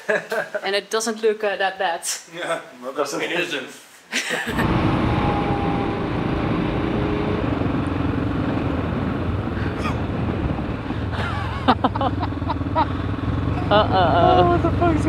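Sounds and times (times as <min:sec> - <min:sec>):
motorcycle engine running: 0:04.5 - 0:15.0
wind and road noise: 0:04.5 - 0:15.0.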